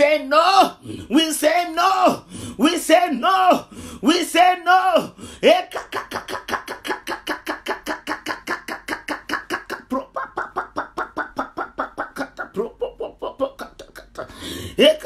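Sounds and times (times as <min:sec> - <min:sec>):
woman rapidly repeating syllables: 0:05.4 - 0:15.0.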